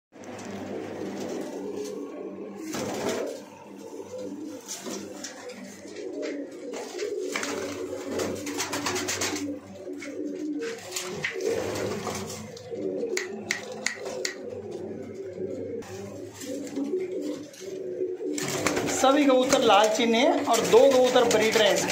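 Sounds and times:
pigeons cooing: 0:00.2 - 0:21.9
sharp clicks: 0:12.5 - 0:14.5.

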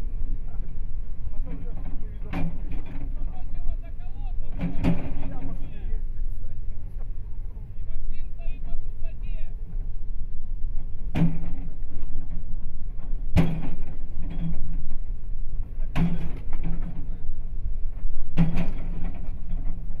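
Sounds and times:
excavator engine running: 0:00.0 - 0:20.0
excavator bucket striking asphalt: 0:11.1 - 0:12.4, 0:13.3 - 0:14.7, 0:15.8 - 0:17.1, 0:18.3 - 0:19.8.

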